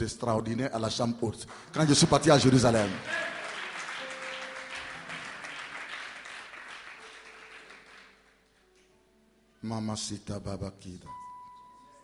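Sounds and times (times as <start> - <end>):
congregation applauding: 1.5 - 8.9.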